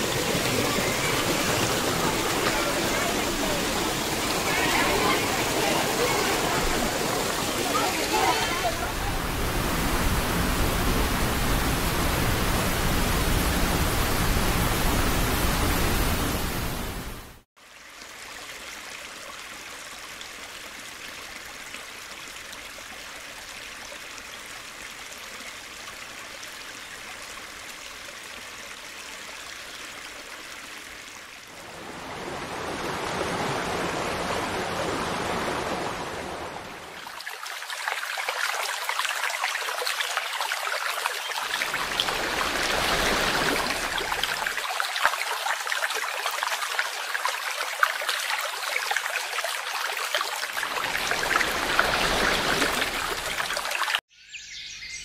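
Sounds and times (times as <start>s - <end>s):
waterfall splashing on rocks: 0.0s - 17.5s, 30.0s - 54.0s.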